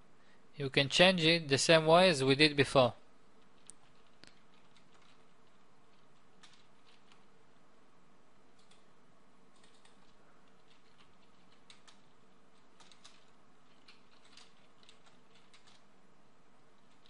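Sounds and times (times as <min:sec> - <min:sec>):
low background hiss: 0:00.0 - 0:17.0
keyboard keys clicking: 0:03.5 - 0:07.3, 0:08.6 - 0:08.9, 0:09.5 - 0:15.9, 0:16.8 - 0:17.0.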